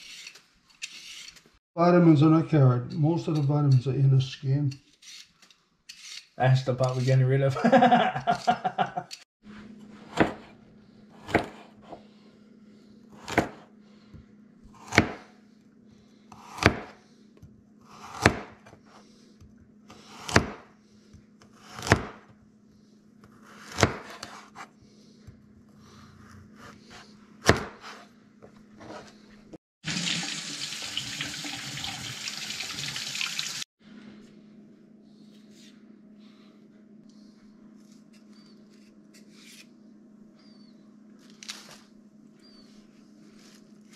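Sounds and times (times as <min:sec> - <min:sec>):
knife chopping on cutting board: 0:10.1 - 0:10.6, 0:11.2 - 0:12.0, 0:13.2 - 0:13.7, 0:14.8 - 0:15.3, 0:16.4 - 0:17.0, 0:17.9 - 0:18.8, 0:19.9 - 0:20.7, 0:21.4 - 0:22.3, 0:23.3 - 0:24.7, 0:26.7 - 0:28.0
kitchen tap running: 0:29.8 - 0:33.6.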